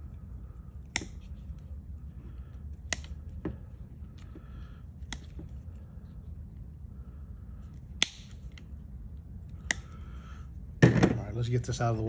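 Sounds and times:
snips cutting wires: 0.8 - 1.6, 2.7 - 3.4, 5.0 - 5.5, 7.9 - 8.7.

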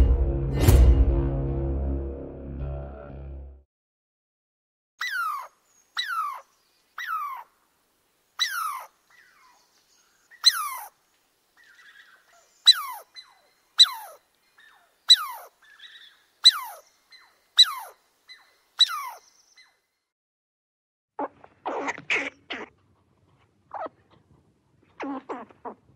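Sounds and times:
squirrel calling: 5.0 - 7.6, 8.4 - 11.0, 11.6 - 19.9, 21.2 - 22.7, 23.7 - 24.0, 25.0 - 25.9.

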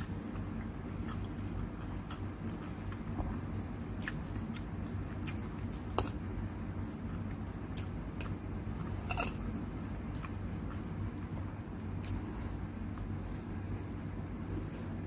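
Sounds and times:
chewing: 0.0 - 3.1, 3.7 - 6.3, 7.0 - 11.3, 11.9 - 14.8
steady low hum: 0.0 - 15.0
cutlery clinking on a plate: 9.0 - 9.4.

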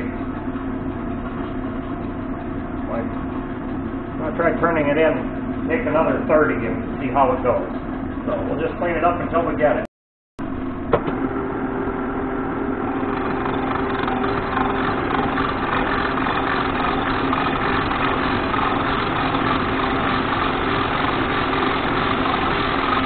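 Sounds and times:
lathe gearing humming: 0.0 - 9.8, 10.4 - 23.0
lathe tool cutting metal: 11.1 - 23.0.

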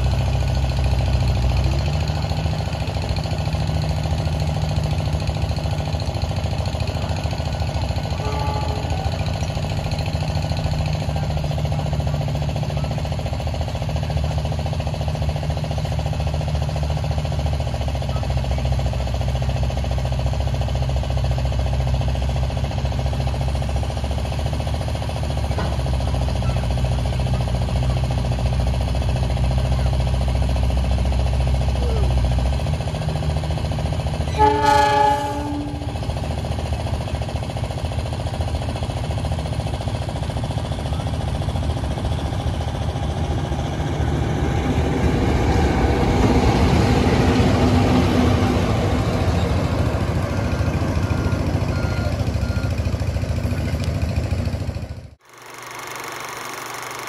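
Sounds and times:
locomotive engine and wheels rumble: 0.0 - 57.0
locomotive horn blast: 8.0 - 9.3, 34.3 - 36.2.

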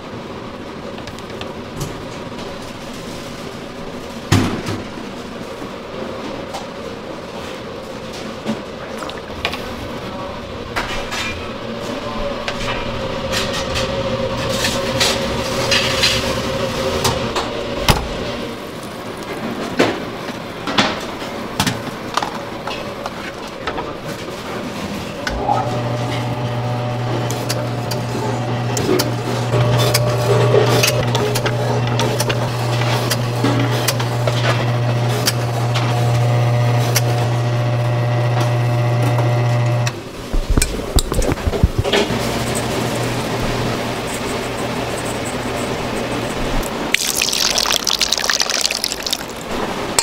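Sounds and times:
meat slicer motor humming: 25.6 - 39.8.

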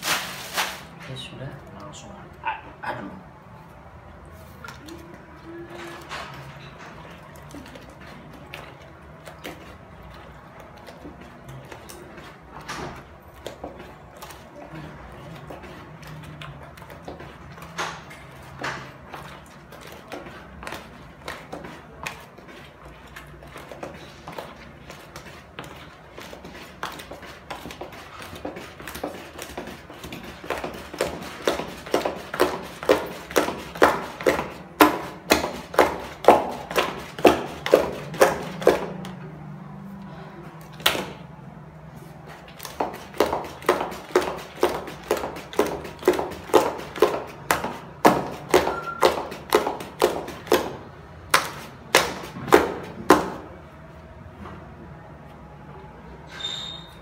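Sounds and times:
wooden stick knocking plastic bucket: 26.9 - 39.1, 42.6 - 53.5.

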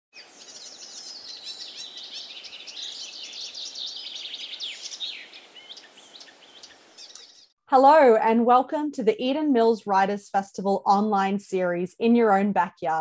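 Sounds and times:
songbirds chirping and whistling: 0.2 - 7.6.

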